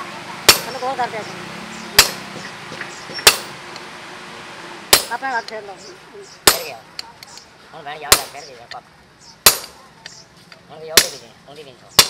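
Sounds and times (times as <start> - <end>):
hammer clanging on steel: 0.5 - 0.8, 1.9 - 3.6, 4.9 - 5.2, 6.4 - 7.4, 8.1 - 8.5, 9.4 - 9.8, 11.0 - 11.3.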